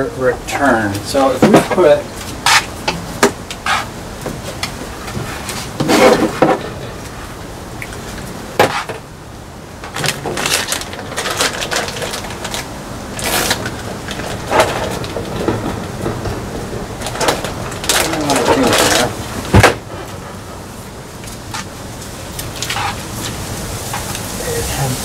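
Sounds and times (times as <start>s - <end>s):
hoses rustling: 0.0s - 25.0s.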